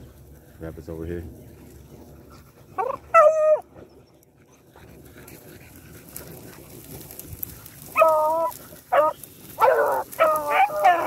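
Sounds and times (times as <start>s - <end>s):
dogs rustling through grass: 0.0s - 11.0s
hounds yelping: 2.6s - 4.7s, 5.3s - 11.0s.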